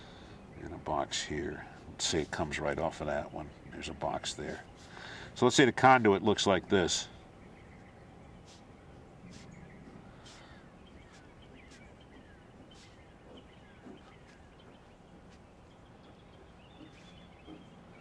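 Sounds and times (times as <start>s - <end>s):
birds chirping: 0.0s - 18.0s
pen scratching on paper: 9.3s - 12.0s.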